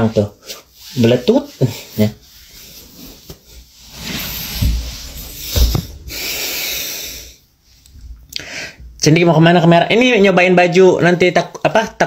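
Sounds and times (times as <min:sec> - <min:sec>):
rustling and rubbing: 0:00.0 - 0:06.4
steady hiss: 0:00.0 - 0:07.8
low thuds: 0:04.6 - 0:06.3.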